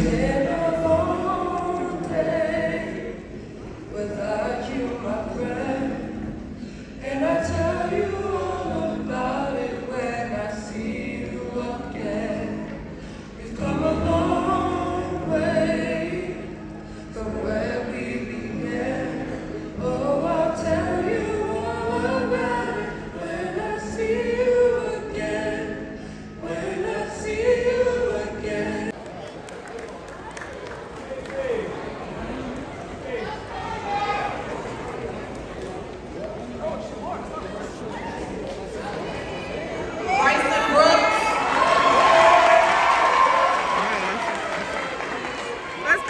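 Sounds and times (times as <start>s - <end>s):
group singing in harmony: 0.0s - 29.0s.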